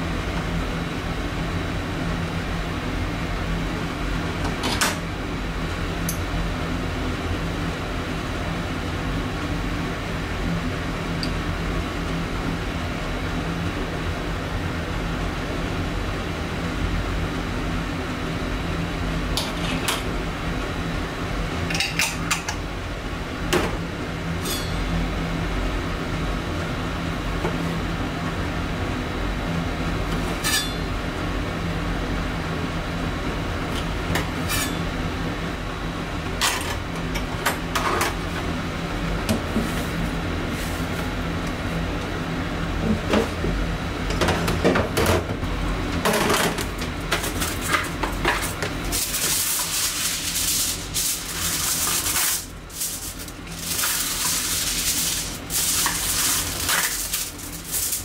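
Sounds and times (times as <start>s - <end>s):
aluminium foil crinkling: 47.2s - 58.0s.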